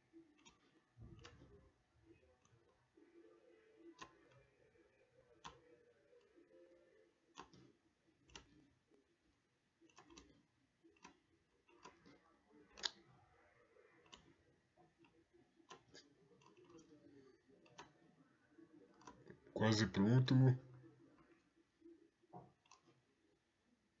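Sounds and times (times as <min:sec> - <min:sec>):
computer mouse clicks: 0:00.0 - 0:01.6, 0:03.8 - 0:04.5, 0:05.3 - 0:06.4, 0:07.3 - 0:08.8, 0:09.8 - 0:13.2, 0:13.8 - 0:18.1, 0:18.9 - 0:19.5, 0:22.3 - 0:23.1.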